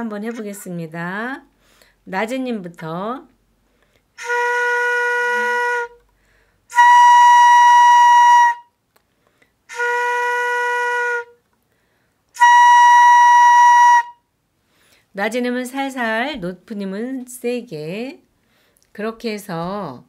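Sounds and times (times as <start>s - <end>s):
bamboo flute notes in octaves: 4.2s - 6.1s, 6.7s - 8.8s, 9.7s - 11.4s, 12.4s - 14.3s.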